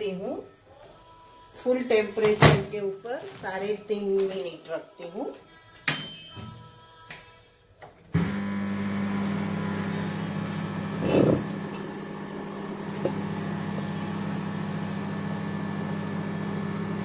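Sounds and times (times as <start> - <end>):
microwave oven humming: 8.1 - 17.0.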